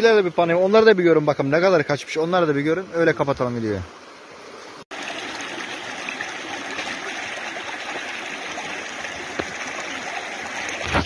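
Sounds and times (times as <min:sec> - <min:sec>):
creek water rushing: 0:00.0 - 0:11.0.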